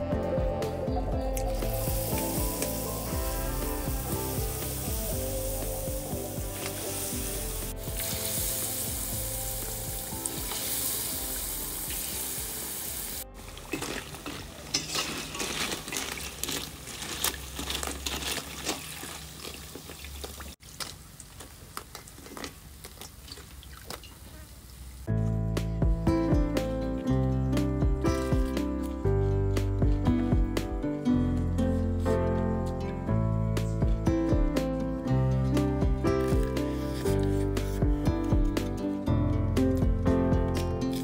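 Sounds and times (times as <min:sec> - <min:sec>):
background music: 0:00.0 - 0:15.0, 0:25.1 - 0:41.0
crackling and popping oil: 0:01.4 - 0:25.1
food deep-frying in oil: 0:01.6 - 0:25.1.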